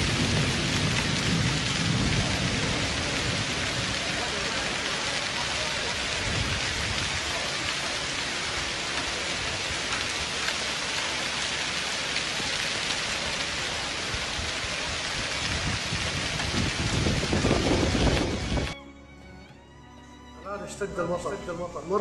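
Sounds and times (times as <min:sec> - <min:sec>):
low thunder rumble: 0:00.0 - 0:07.7, 0:13.7 - 0:18.8
heavy rain and hail on stone: 0:00.0 - 0:18.8.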